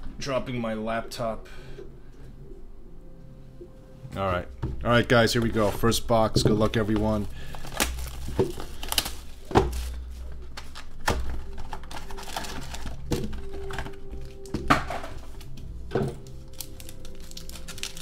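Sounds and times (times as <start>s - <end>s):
shrink-wrap and cardboard rustling: 4.9s - 18.0s.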